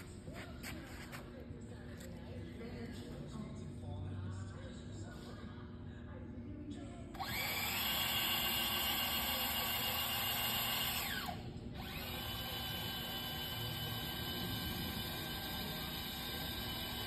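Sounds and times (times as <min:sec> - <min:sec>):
electric saw motor whining: 0:07.2 - 0:17.0.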